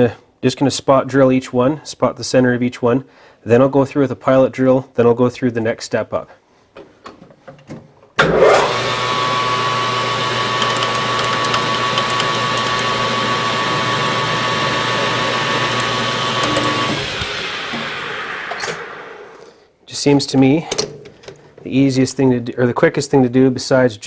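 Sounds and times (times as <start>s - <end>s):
lathe motor whine: 8.2s - 19.4s
center drill spot-drilling: 8.2s - 19.5s.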